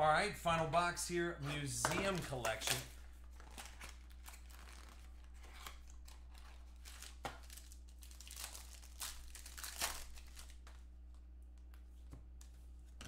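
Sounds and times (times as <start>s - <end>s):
plastic wrapping crinkling: 2.0s - 10.8s.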